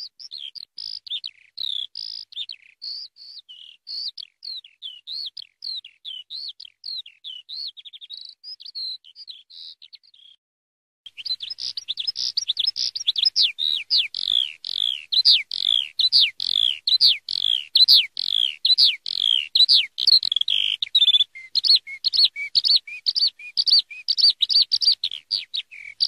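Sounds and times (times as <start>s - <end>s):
skylark singing: 0.0s - 10.4s, 11.1s - 26.0s.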